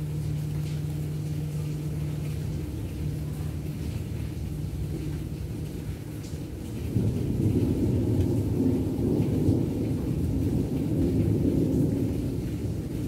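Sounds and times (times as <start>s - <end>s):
rolling thunder: 6.9s - 12.8s.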